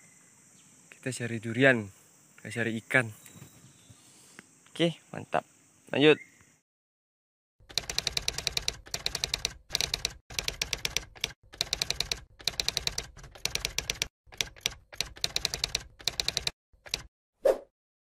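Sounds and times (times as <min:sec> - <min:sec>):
typewriter key clicks: 0:07.7 - 0:17.1.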